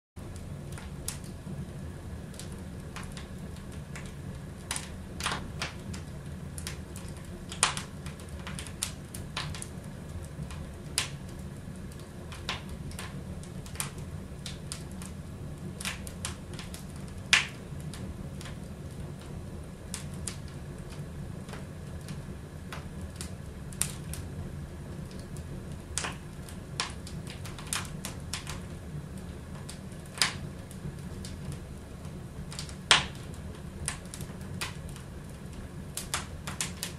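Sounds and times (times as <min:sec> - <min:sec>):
steady low hum: 0:00.2 - 0:36.9
wood fire crackling: 0:00.2 - 0:36.9.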